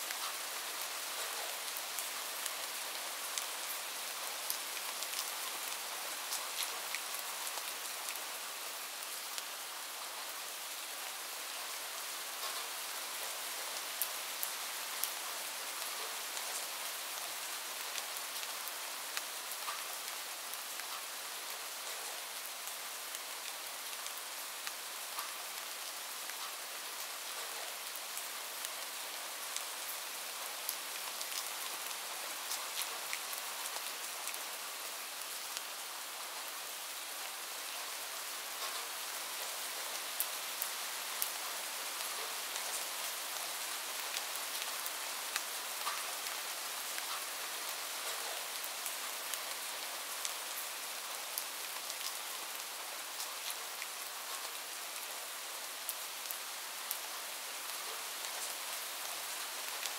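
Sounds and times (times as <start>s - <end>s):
light rain hiss: 0.0s - 59.9s.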